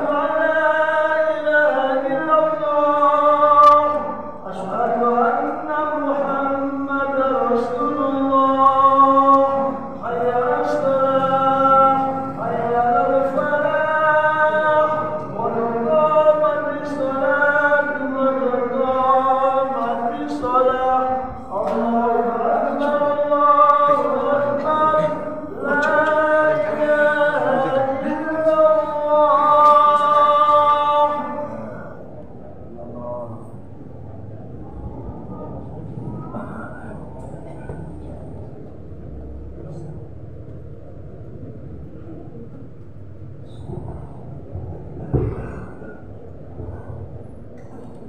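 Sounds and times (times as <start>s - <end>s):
man chanting into a microphone: 0.0s - 34.4s.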